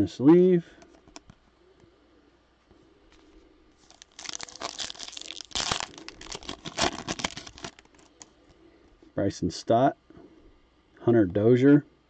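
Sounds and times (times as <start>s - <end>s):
foil wrapper crinkling and tearing: 3.8s - 8.3s.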